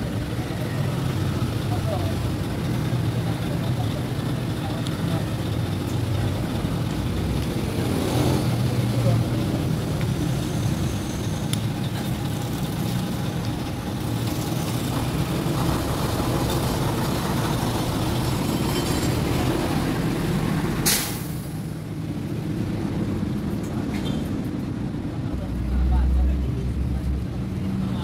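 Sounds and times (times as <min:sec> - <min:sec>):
vehicle engines rumbling past: 0:00.0 - 0:28.0
short sharp hiss: 0:20.8 - 0:21.5.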